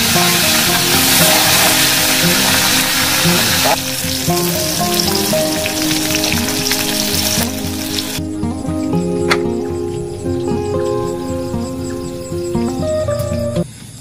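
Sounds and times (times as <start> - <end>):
oil sizzling in a wok: 0.0 - 8.2
background music: 0.0 - 13.7.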